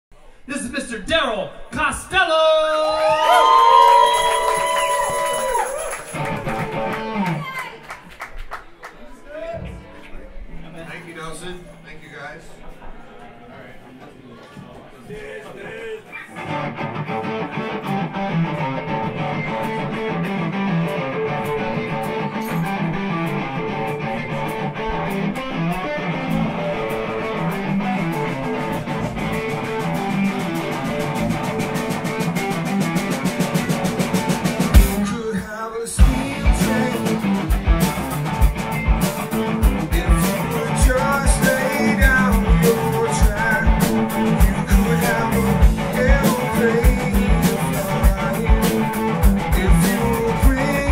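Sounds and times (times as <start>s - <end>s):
electric guitar: 2.9s - 7.8s, 16.1s - 50.9s
live rock band playing: 4.0s - 7.6s, 16.3s - 50.9s.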